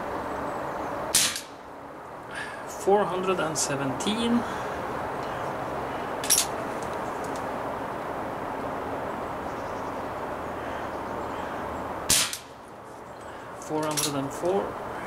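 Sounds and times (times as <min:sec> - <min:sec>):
steady background noise: 0:00.0 - 0:15.0
air pistol shots: 0:01.1 - 0:01.6, 0:12.1 - 0:12.5.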